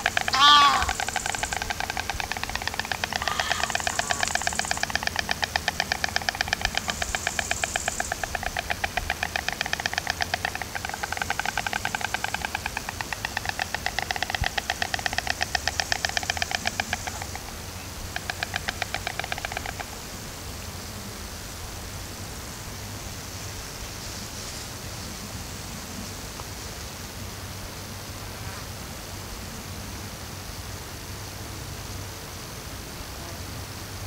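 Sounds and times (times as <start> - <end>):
storks clattering bills: 0.0 - 17.5, 18.1 - 20.0
faint hiss: 0.0 - 34.0.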